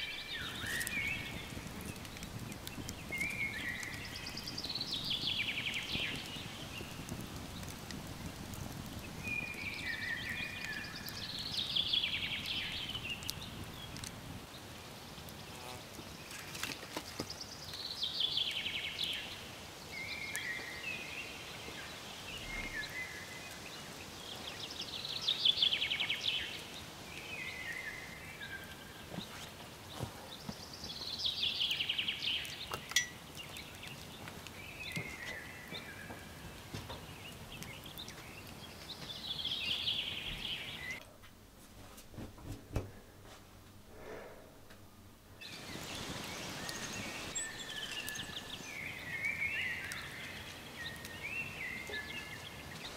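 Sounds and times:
woods background: 0:00.0 - 0:52.9
songbird trilling: 0:45.5 - 0:50.2.

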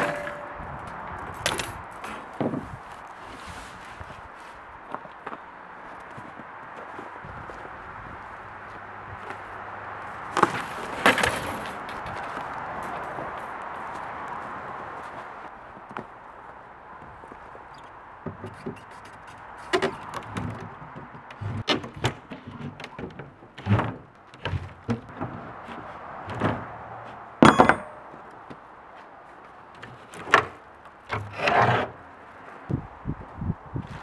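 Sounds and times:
ringing metallic clank: 0:00.0 - 0:00.6, 0:27.4 - 0:28.2
wooden knocks creaks and scrapes: 0:18.2 - 0:28.6, 0:29.8 - 0:32.0
lid dragging scrape: 0:31.2 - 0:32.0.

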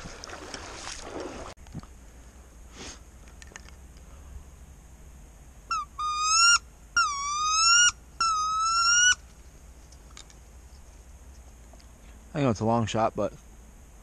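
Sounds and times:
dog whining: 0:05.7 - 0:09.2.

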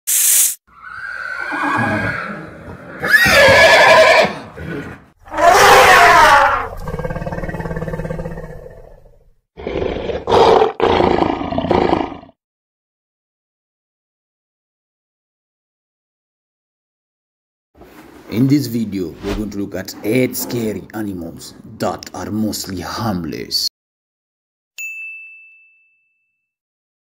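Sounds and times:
horse neighing: 0:00.7 - 0:07.3
loud animal calls: 0:00.7 - 0:09.0
lion roaring: 0:01.7 - 0:12.3.

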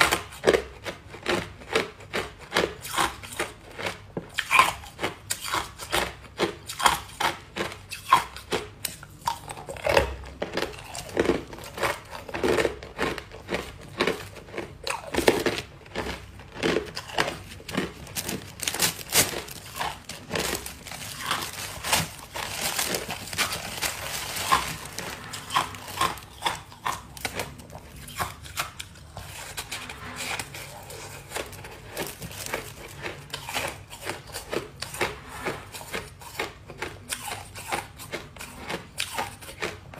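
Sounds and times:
ice crunching between teeth: 0:00.0 - 0:29.8, 0:30.4 - 0:39.9
plastic bag crinkling: 0:10.4 - 0:28.1.

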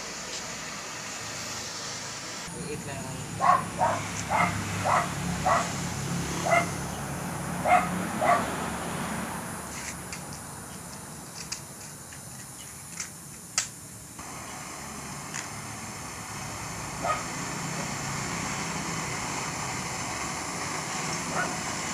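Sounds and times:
dog barking: 0:03.4 - 0:05.8, 0:06.4 - 0:06.8, 0:07.6 - 0:08.5, 0:17.0 - 0:17.3, 0:21.3 - 0:21.6.

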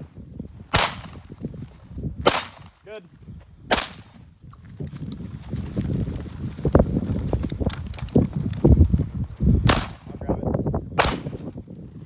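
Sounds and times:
gunshots with short echo: 0:00.7 - 0:01.3, 0:02.2 - 0:02.8, 0:03.7 - 0:04.2, 0:09.6 - 0:10.2, 0:11.0 - 0:11.5.

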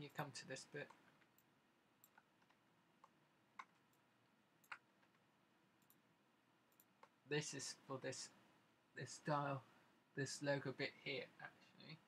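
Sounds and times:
computer mouse clicks: 0:00.8 - 0:04.0, 0:04.6 - 0:05.2, 0:05.8 - 0:06.0, 0:06.7 - 0:07.2.

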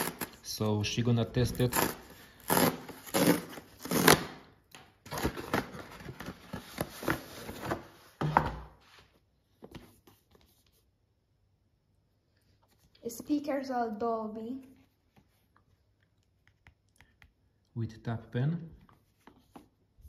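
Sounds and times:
cardboard tearing: 0:00.0 - 0:00.5, 0:01.4 - 0:07.8
cardboard rustling: 0:05.0 - 0:10.8.

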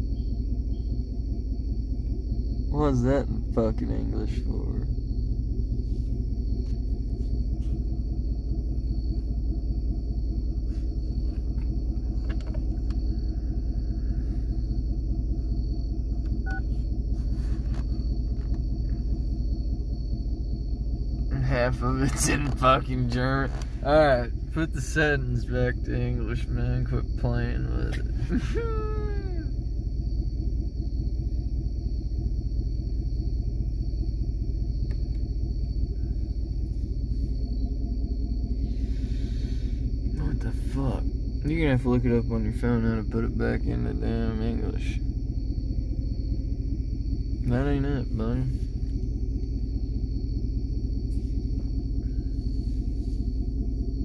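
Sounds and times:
pickup engine idling: 0:00.0 - 0:54.0.

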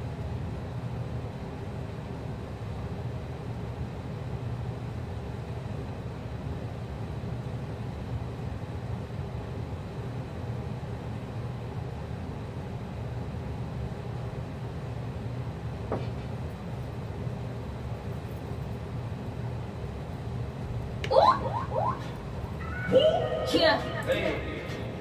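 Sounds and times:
low rumbling noise: 0:17.3 - 0:25.0.

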